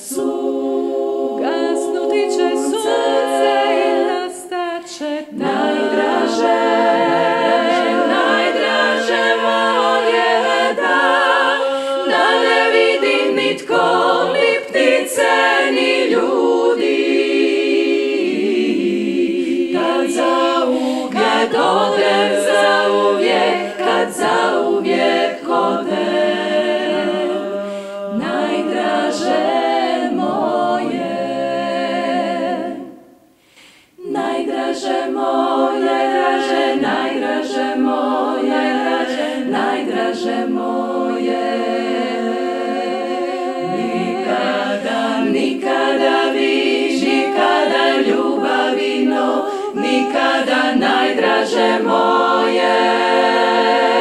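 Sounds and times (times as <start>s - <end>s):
women singing in harmony: 0.0s - 54.0s.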